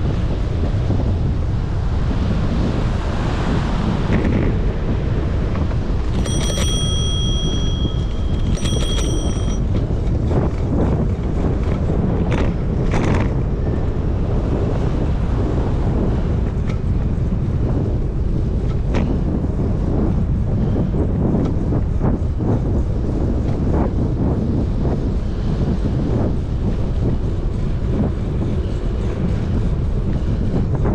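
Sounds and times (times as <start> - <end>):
wind rushing over microphone: 0.0 - 30.9
bicycle bell ringing: 6.0 - 10.5.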